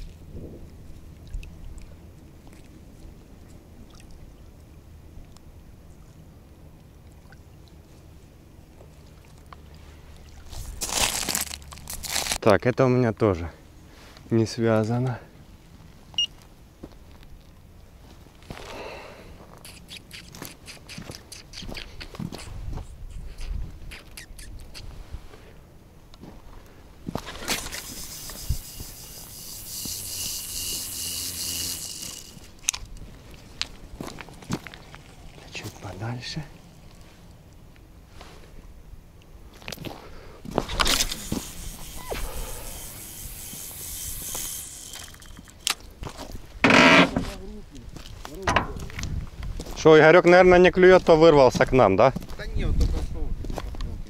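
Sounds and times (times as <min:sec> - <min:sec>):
small clicks of fishing swivel: 0:27.5 - 0:33.0, 0:40.8 - 0:45.9.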